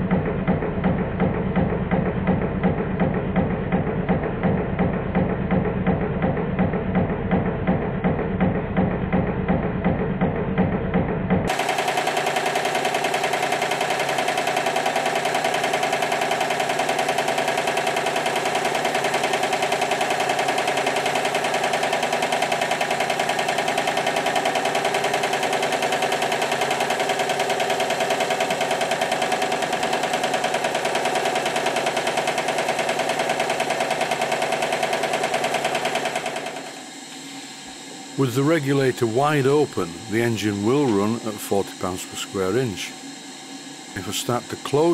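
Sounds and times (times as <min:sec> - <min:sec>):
model steam engine running fast: 0:11.5 - 0:43.0, 0:43.9 - 0:44.9.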